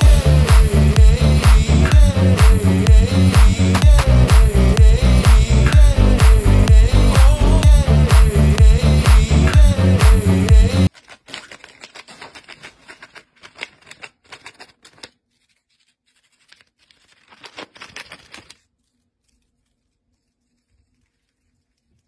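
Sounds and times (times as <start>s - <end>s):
bird shredding paper: 10.9s - 18.9s.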